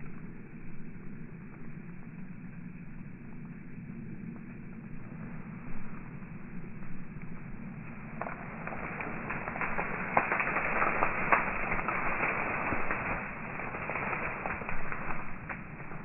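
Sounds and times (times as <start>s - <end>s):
plants rustling underfoot: 8.0s - 16.0s.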